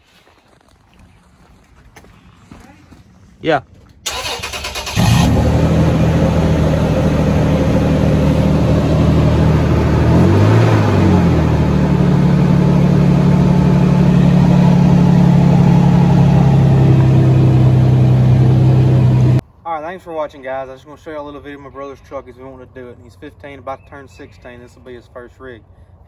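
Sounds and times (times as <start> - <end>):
engine starter cranking: 4.1 - 5.6
car engine idling: 4.1 - 19.4
engine revving: 4.1 - 19.4.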